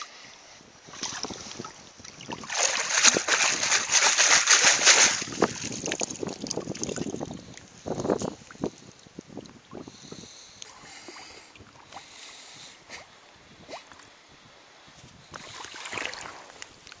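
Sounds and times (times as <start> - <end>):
water splashing and sloshing: 0.8 - 8.7, 15.3 - 17.0
water trickling through scoop: 1.0 - 7.5.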